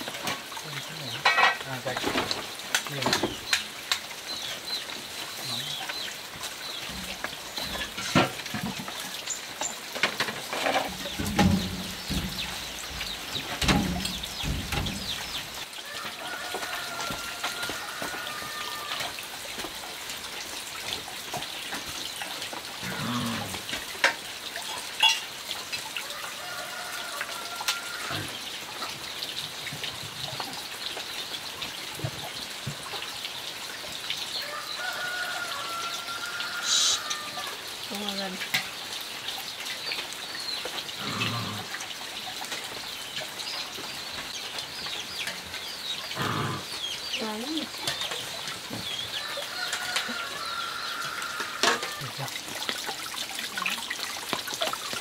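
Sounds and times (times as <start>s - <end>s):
high drawn-out animal call: 35.6s - 37.6s.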